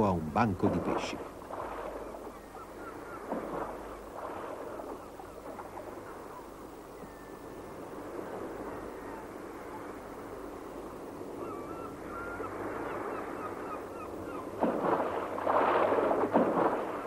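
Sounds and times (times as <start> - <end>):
seabirds calling harshly: 0.0 - 6.6, 11.2 - 15.9
birds splashing into water: 0.6 - 6.4, 12.7 - 17.0.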